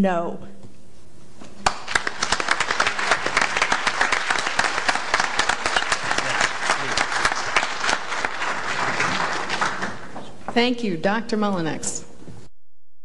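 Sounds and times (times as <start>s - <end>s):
audience applauding: 1.6s - 10.2s.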